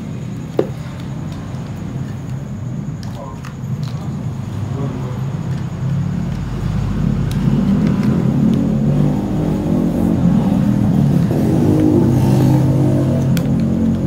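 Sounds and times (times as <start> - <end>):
engine rumble: 0.0 - 14.0.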